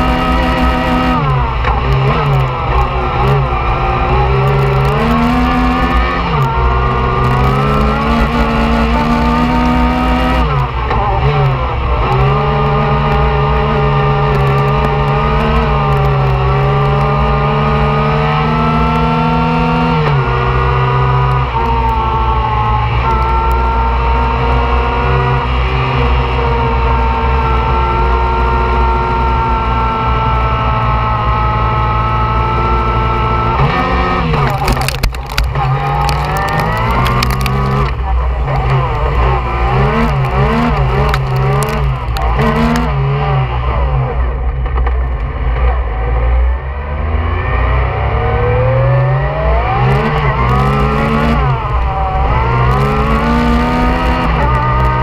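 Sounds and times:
engine revving hard: 23.8s - 44.2s, 47.1s - 55.0s.

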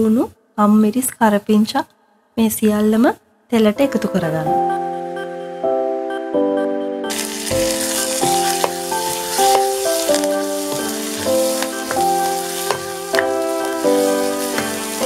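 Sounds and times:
background piano music: 3.7s - 15.0s
vegetables sizzling in hot oil: 7.1s - 15.0s.

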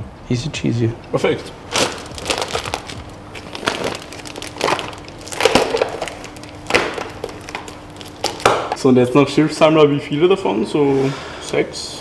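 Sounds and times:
faint steady hum: 0.0s - 12.0s
plastic bag crinkling: 1.6s - 8.8s.

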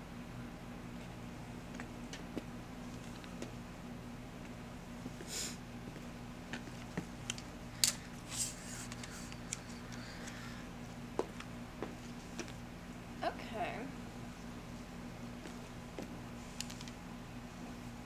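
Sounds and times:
steady low hum: 0.0s - 18.0s
tripod clicks and rustles: 6.5s - 10.4s, 16.0s - 17.0s.

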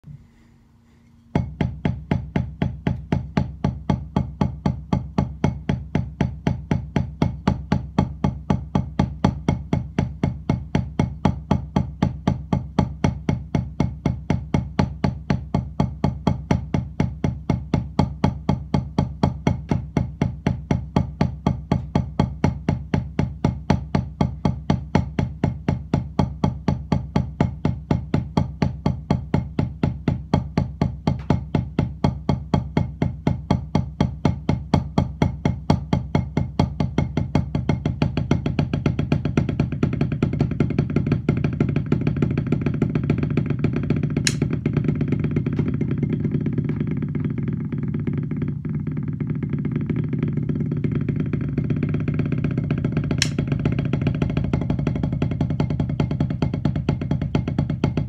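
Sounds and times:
drumsticks on practice pad: 44.2s - 44.6s, 53.2s - 53.7s.

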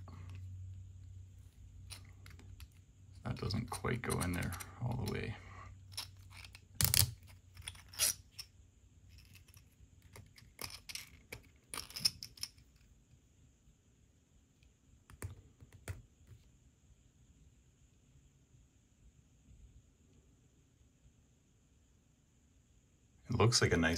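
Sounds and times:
plastic parts clicking and scraping: 1.8s - 8.5s, 9.1s - 12.9s.

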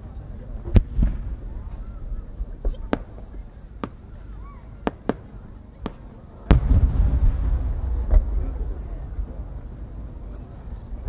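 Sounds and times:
firework boom: 6.5s - 11.0s
low rumble: 6.5s - 11.0s.

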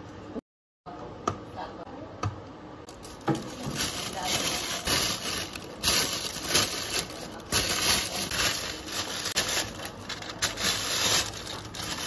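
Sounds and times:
plastic bags crinkling: 2.9s - 12.0s.

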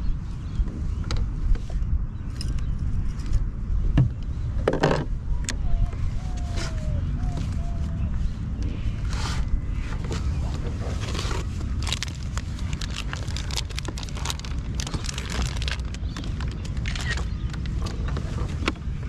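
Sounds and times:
wind rumble on microphone: 0.0s - 19.0s
clicks and rustles of handling: 4.2s - 19.0s.

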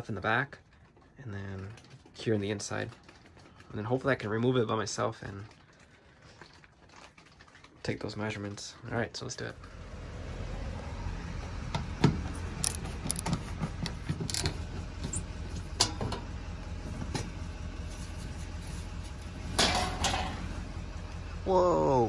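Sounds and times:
clicks and knocks of screws: 12.6s - 13.4s, 14.2s - 14.6s.

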